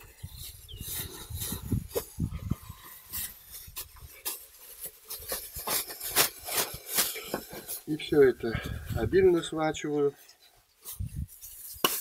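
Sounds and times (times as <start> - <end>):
plastic bag rustling: 0.0 - 8.4.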